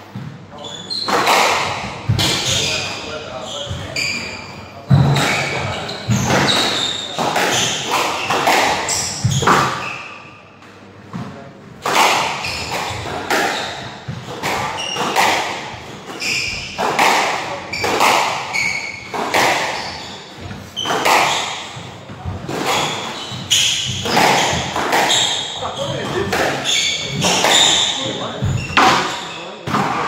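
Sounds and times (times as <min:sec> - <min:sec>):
shoes squeaking on wooden floor: 0:00.2 - 0:10.1, 0:11.9 - 0:30.0
squash ball smacking walls: 0:11.8 - 0:20.0, 0:20.8 - 0:30.0.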